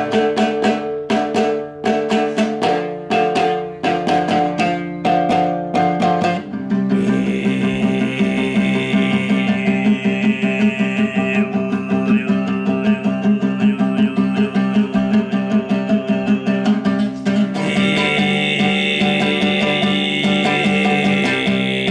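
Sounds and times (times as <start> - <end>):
plucked string instrument: 0.0 - 21.9
throat singing drone: 6.2 - 21.9.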